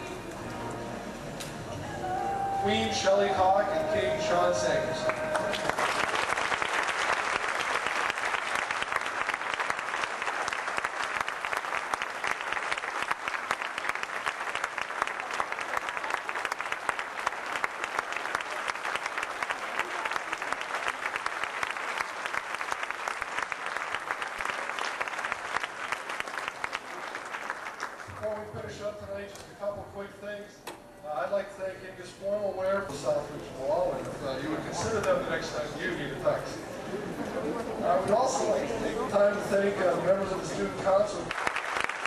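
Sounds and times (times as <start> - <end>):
crowd applauding: 3.2 - 28.7, 41.0 - 42.0.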